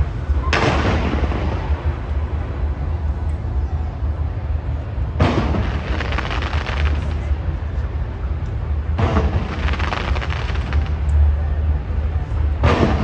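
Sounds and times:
firework crackling: 0.0 - 3.3, 4.1 - 13.0
steady low rumble: 0.0 - 13.0
firework bursts: 0.3 - 2.7, 5.1 - 7.6, 8.8 - 11.1.

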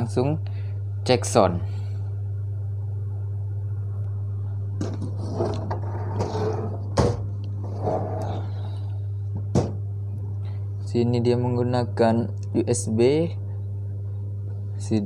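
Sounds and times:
steady low hum: 0.0 - 15.0
metal case rubbing on floor: 4.8 - 8.5.

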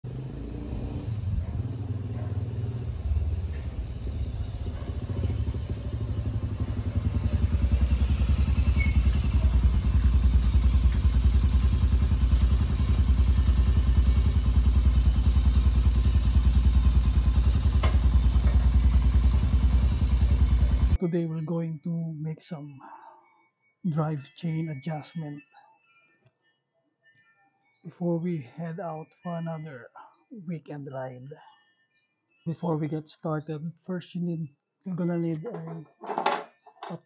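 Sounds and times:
motorcycle engine idling: 0.1 - 21.0.

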